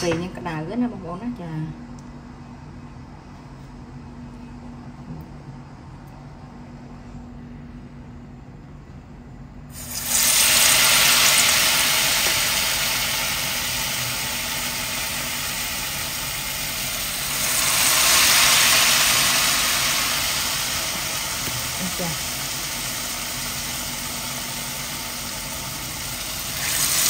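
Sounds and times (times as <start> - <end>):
low steady hum: 0.0 - 27.0
fritters sizzling in hot oil: 9.7 - 27.0.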